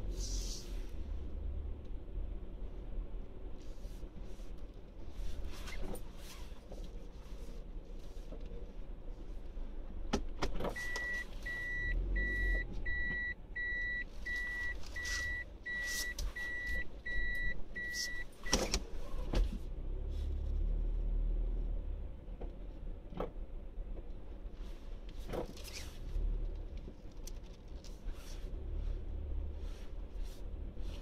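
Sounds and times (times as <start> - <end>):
car driving slowly: 0.0 - 31.0
electronic warning beeps: 10.8 - 18.6.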